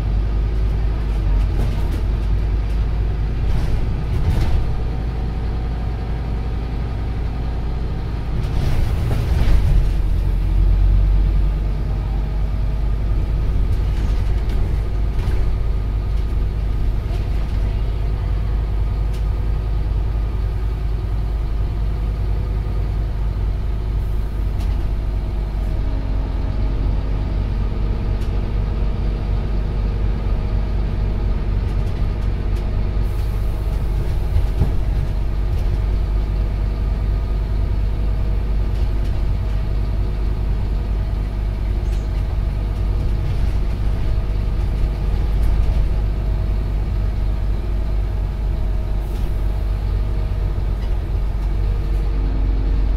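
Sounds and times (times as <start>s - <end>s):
bus diesel engine rumble: 0.0s - 52.9s
road noise: 0.0s - 52.9s.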